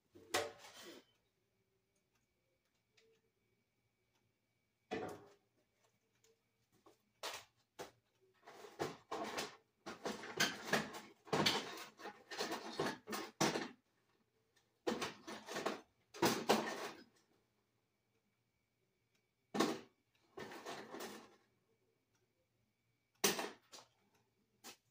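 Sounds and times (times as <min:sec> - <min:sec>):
objects scraping and clattering: 0:00.2 - 0:01.1, 0:07.2 - 0:13.8, 0:14.9 - 0:17.2, 0:19.6 - 0:21.4.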